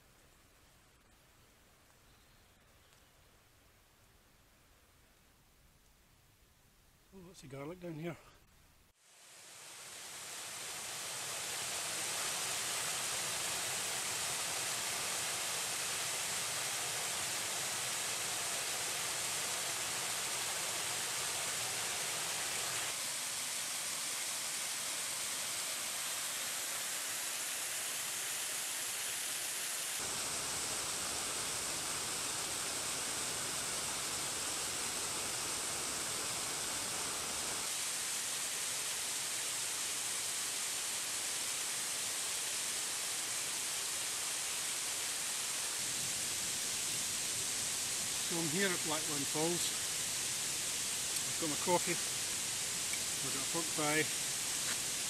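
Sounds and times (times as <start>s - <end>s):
waterfall rushing: 9.2s - 55.0s.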